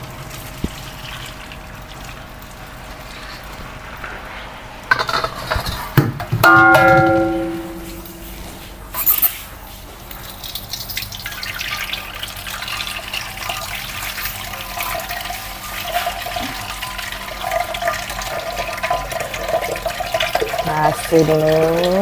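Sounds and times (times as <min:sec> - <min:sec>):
tap water running: 0:00.0 - 0:03.8, 0:10.0 - 0:22.0
water splashing into sink: 0:10.2 - 0:22.0.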